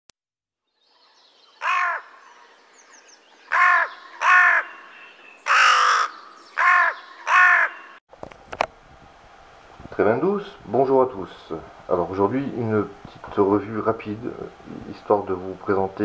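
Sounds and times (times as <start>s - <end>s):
crow cawing: 1.6s - 2.3s, 3.5s - 8.0s.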